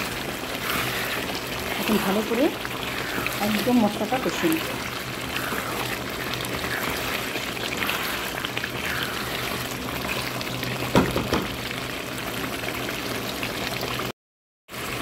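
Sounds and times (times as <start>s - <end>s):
spatula stirring: 0.0s - 11.5s
meat sizzling in a pan: 0.0s - 14.1s
sharp knocks: 10.9s - 11.6s.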